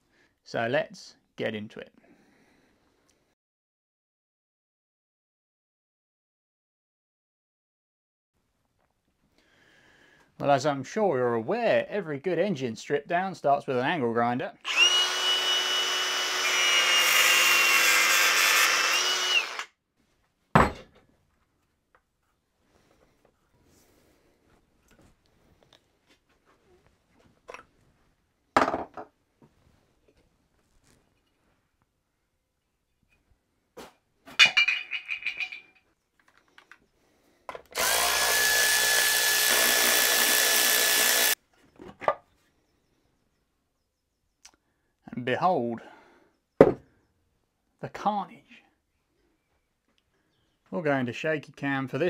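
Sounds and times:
angle grinder cutting: 14.6 - 19.7, 37.7 - 41.4
sharp clunk: 20.6 - 21.0.

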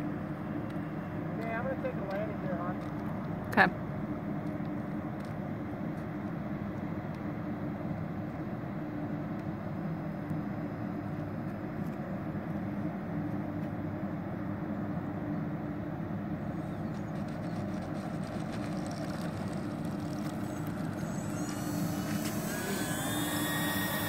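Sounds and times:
electric ducted fans rushing: 0.0 - 24.0
high whine rising in pitch: 16.4 - 24.0.

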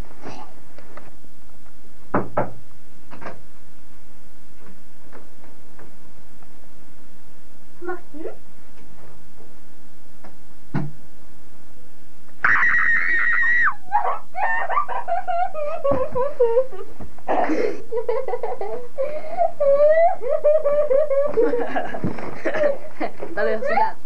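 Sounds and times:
person shrieking: 12.4 - 14.9
high wavering vocal wails: 12.4 - 15.9.

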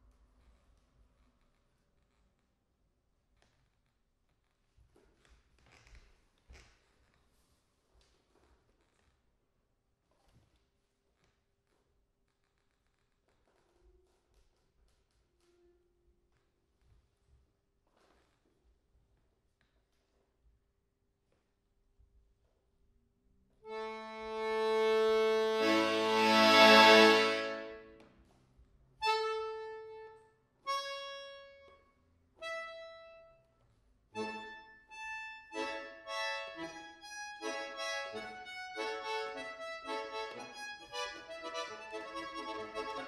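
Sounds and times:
button accordion playing chords: 23.7 - 27.9, 29.0 - 31.8, 32.4 - 33.3, 34.2 - 43.0.

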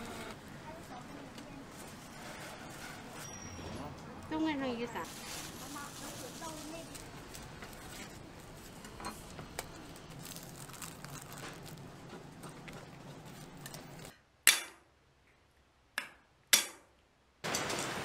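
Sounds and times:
metal tools clinking and scraping: 2.8 - 4.0.

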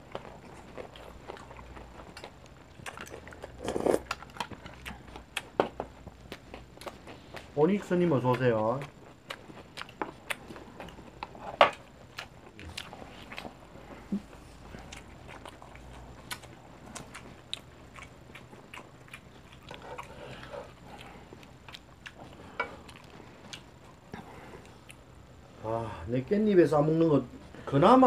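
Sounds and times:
people chewing and biting: 0.0 - 25.4.

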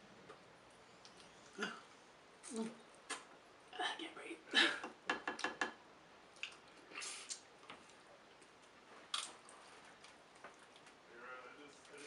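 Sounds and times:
soft chewing: 0.2 - 3.3, 6.3 - 12.0.

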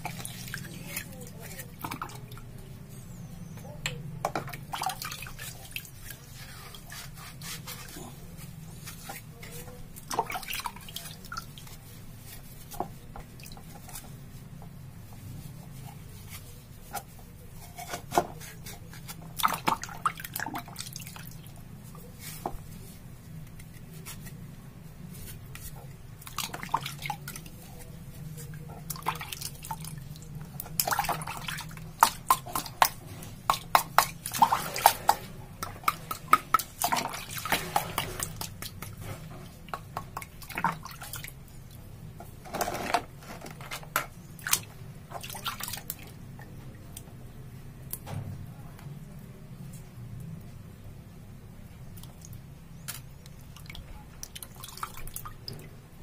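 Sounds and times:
water dripping and splashing: 10.0 - 11.9, 19.2 - 21.6, 26.1 - 27.6, 28.5 - 41.9, 44.4 - 46.2, 51.9 - 55.8.

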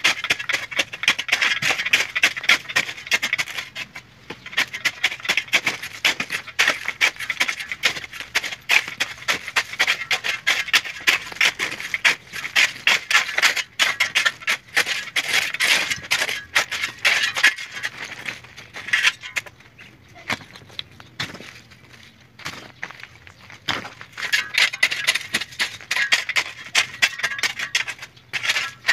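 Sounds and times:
shovel scraping gravel: 0.0 - 19.6, 23.7 - 28.9
small stones rattling: 23.7 - 28.9.

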